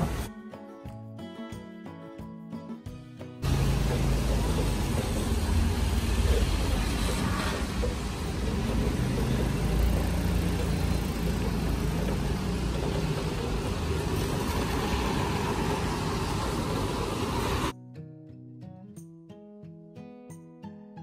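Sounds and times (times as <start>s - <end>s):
cars passing on wet road: 0.0s - 0.3s, 3.4s - 17.7s
music: 0.0s - 6.5s, 17.7s - 21.0s
motorcycle passing: 3.4s - 17.7s.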